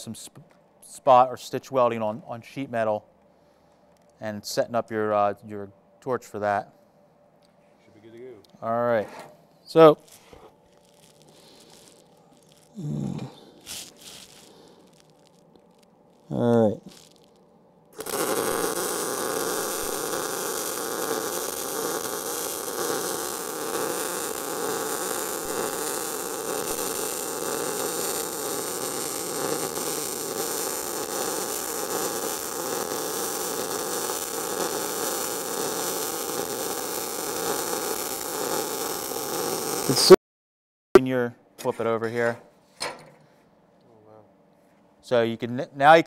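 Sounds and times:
faint hum: 0.0 - 40.1, 41.0 - 46.0
welding arc sizzling: 9.7 - 40.2.

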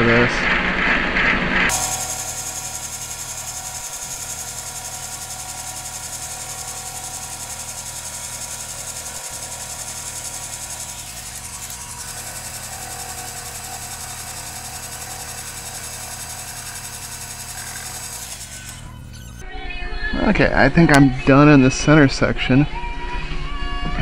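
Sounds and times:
lathe motor and gear whine: 1.7 - 19.4.

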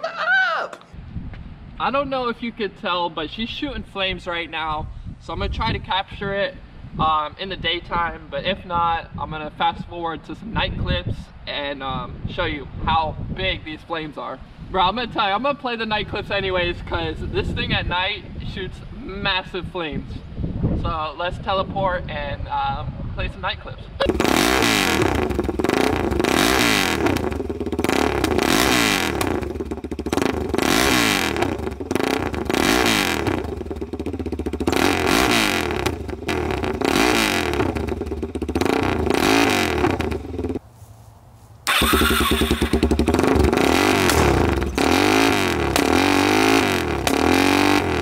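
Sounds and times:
exhaust backfiring pops: 24.0 - 40.6, 41.7 - 48.0
motorcycle engine revving: 24.0 - 40.6, 41.7 - 48.0.

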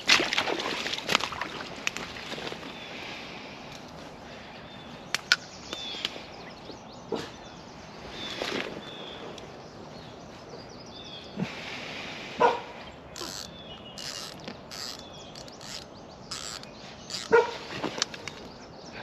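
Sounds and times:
birds chirping: 1.3 - 19.0
lower bird calls: 12.4 - 19.0.

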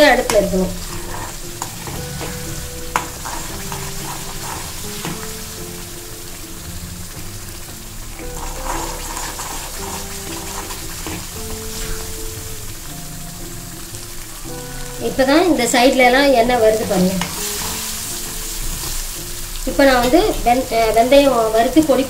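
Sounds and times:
paste sizzling in oil: 0.0 - 22.0
soft background music: 0.0 - 22.0
steel spoon stirring and scraping: 0.1 - 5.8, 8.2 - 12.4, 17.0 - 19.4.

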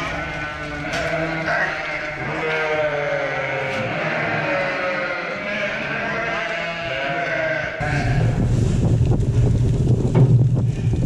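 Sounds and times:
sheep bleating: 0.0 - 8.2.

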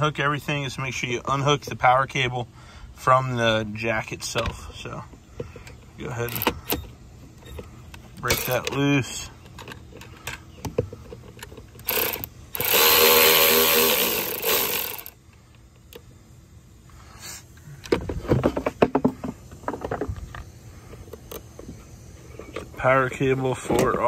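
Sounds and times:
cordless ratchet motor whine: 5.4 - 16.1.

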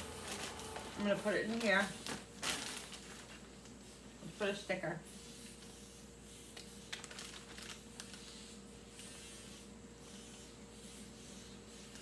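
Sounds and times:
plastic bag crinkling: 0.0 - 3.8, 6.9 - 8.2
low electrical hum: 0.0 - 12.0
marker writing: 8.2 - 12.0.

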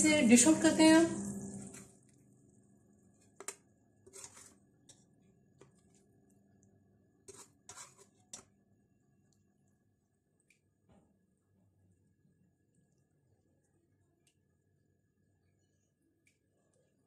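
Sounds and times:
metal spoon scraping pot and plate: 3.4 - 5.0, 7.3 - 8.5.

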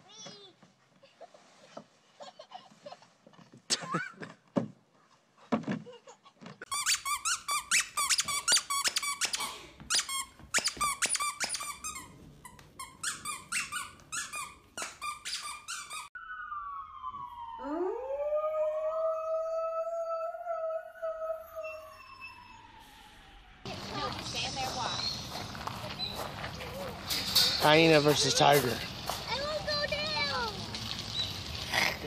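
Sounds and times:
squeaky toy squeaking: 6.6 - 16.2.

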